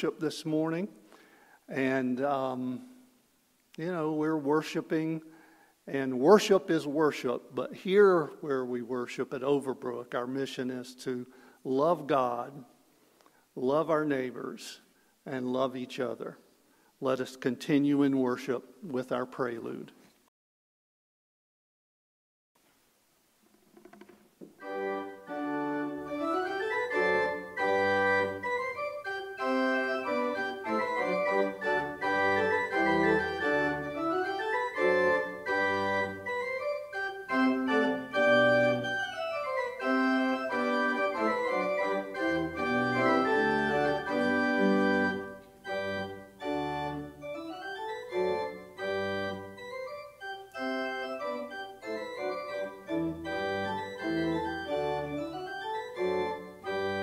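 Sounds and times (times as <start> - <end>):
organ playing chords and runs: 24.6 - 57.0.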